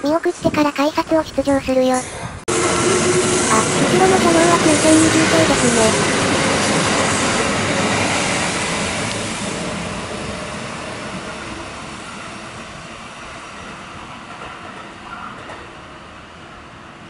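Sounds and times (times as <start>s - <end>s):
electric train running: 2.5s - 13.3s.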